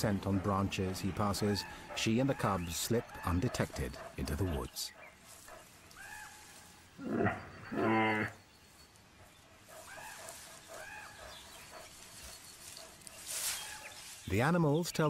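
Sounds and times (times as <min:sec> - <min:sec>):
bear grunting moan: 0:07.0 - 0:08.4.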